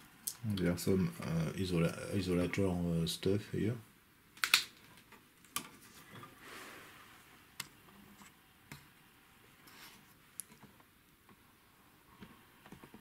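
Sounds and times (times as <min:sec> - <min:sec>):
soft rustle: 0:09.4 - 0:10.8.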